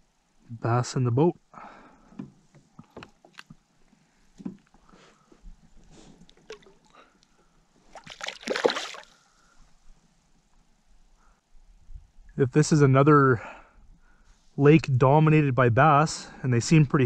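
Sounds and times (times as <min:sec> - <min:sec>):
clicks and knocks handling fish: 0:02.1 - 0:08.3
fish splashing at surface: 0:07.9 - 0:09.2.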